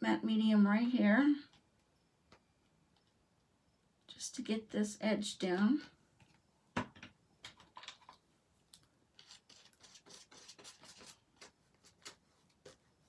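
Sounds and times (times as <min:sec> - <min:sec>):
paintbrush scratchy strokes: 0:09.2 - 0:13.0.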